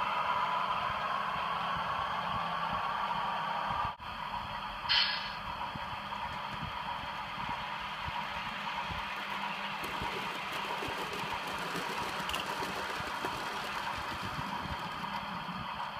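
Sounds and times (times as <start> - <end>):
model train running on rails: 0.0 - 15.9
wheels clicking over points: 5.7 - 15.9.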